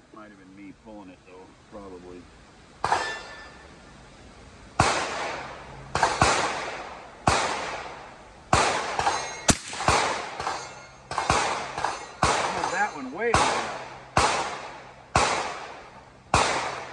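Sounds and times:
rifle gunshots echoing: 4.8 - 16.9.

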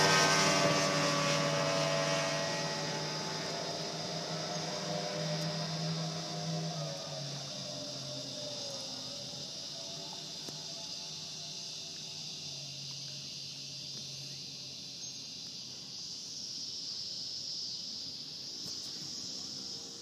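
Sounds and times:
insect chorus drone: 0.0 - 20.0.

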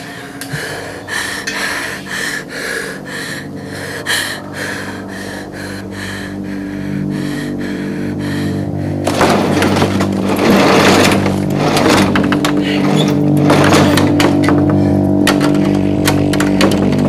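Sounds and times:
man breathing hard: 0.0 - 9.3, 14.6 - 15.2
steady low hum: 0.0 - 17.0.

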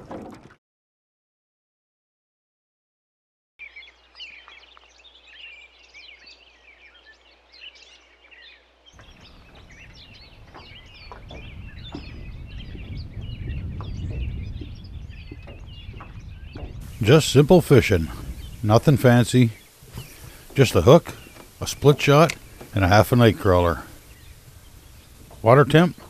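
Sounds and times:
small birds chirping: 3.6 - 26.0.

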